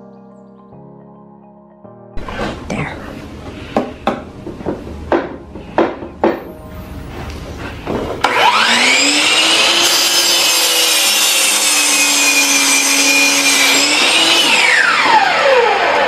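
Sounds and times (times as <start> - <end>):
saw blade cutting wood: 7.8 - 16.0
miter saw motor whine: 8.2 - 16.0.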